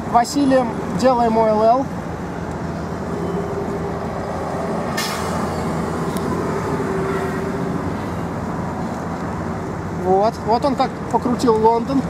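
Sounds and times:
large vehicle engine humming: 0.0 - 12.0
short hiss: 5.0 - 5.5.

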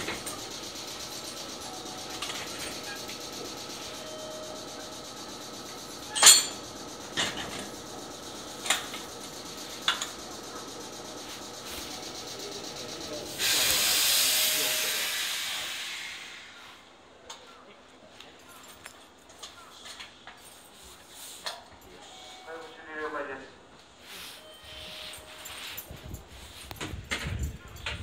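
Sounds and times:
train coupler clacks: 0.0 - 15.4
compressed air hissing: 0.0 - 16.9.

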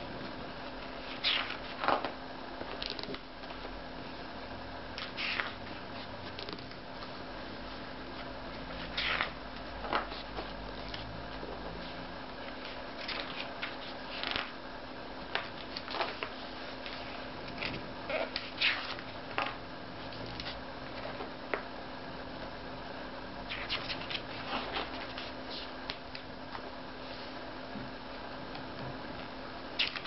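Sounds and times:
faint steady hum: 0.0 - 30.0
book pages rustling: 11.8 - 14.5, 15.4 - 17.8.

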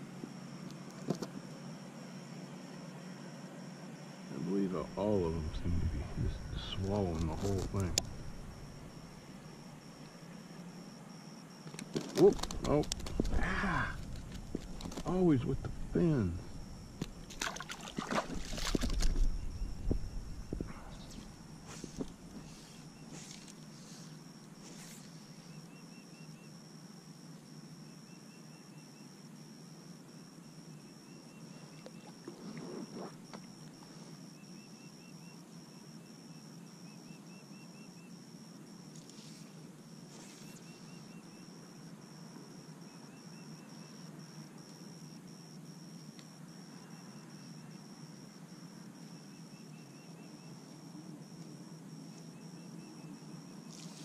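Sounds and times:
low hush of open water: 3.6 - 10.9, 12.3 - 24.2
thin high whine: 4.3 - 10.7, 12.2 - 23.5
rustling noise: 5.9 - 9.0, 11.9 - 15.9, 18.2 - 25.2, 53.6 - 54.0.

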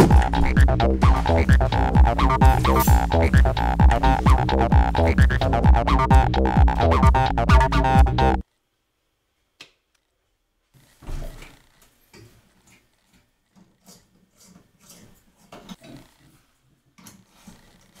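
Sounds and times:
electronic music with heavy beat: 0.0 - 8.4.

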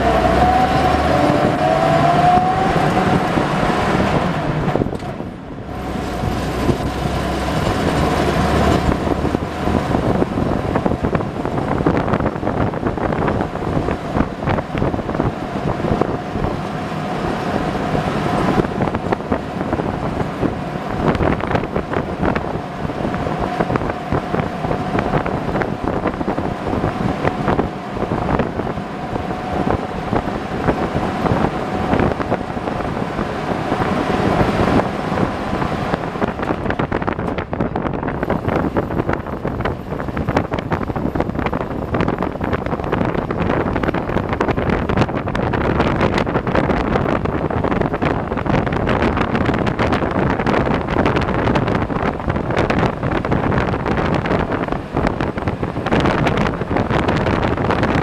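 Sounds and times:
road rumble and rattles: 0.0 - 58.0
steady whine: 0.0 - 58.0
truck engine running: 0.0 - 58.0.

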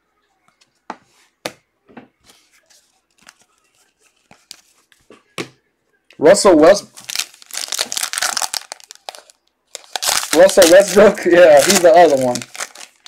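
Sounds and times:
cards shuffling and sliding: 2.2 - 5.1.

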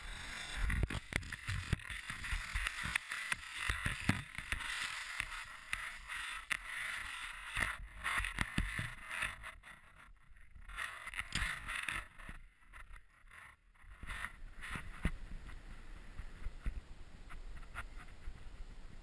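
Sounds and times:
skis hissing through snow: 0.0 - 9.3.

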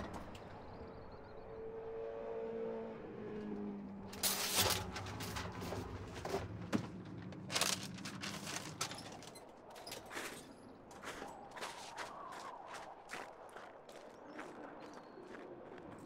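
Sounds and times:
phone book pages rustling: 7.4 - 9.0.

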